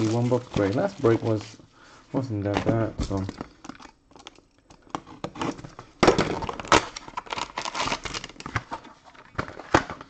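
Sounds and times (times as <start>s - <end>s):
cardboard rustling: 0.0s - 3.6s
plastic wrap crinkling: 0.0s - 10.0s.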